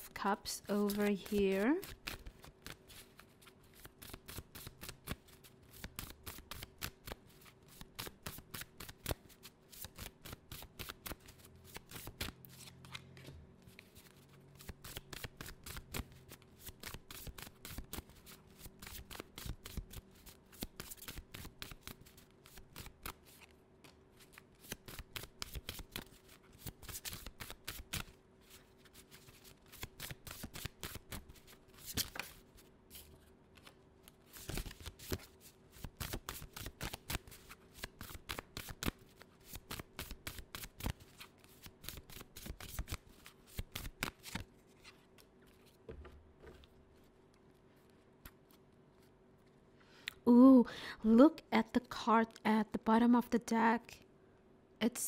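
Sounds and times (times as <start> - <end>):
cards being shuffled: 0.7 - 49.2
faint steady hum: 40.9 - 55.0.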